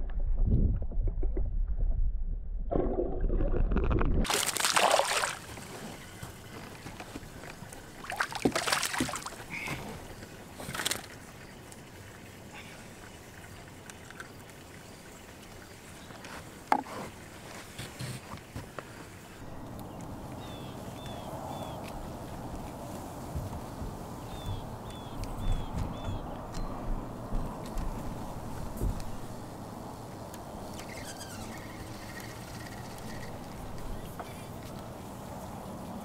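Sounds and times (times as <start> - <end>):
underwater rushing water rumble: 0.0 - 5.7
fish splashing at surface: 2.8 - 5.8, 8.0 - 9.7.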